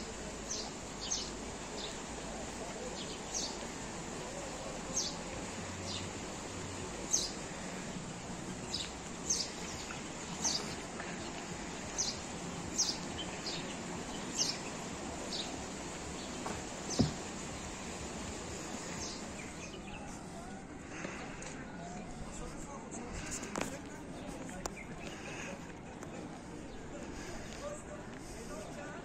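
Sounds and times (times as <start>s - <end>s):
songbird chirping: 0.0s - 22.4s.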